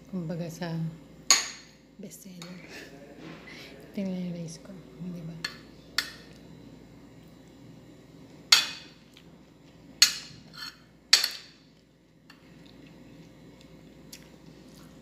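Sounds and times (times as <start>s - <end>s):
spoon scraping plate: 10.3s - 11.4s.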